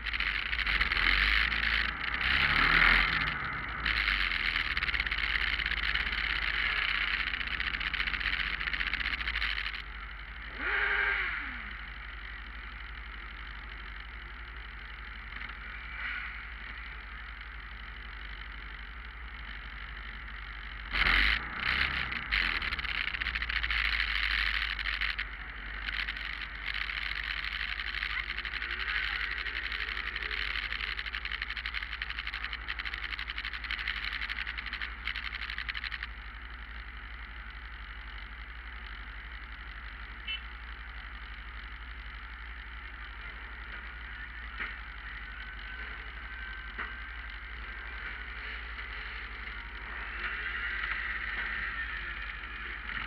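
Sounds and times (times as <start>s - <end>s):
motorcycle engines rumbling: 0.0s - 53.0s.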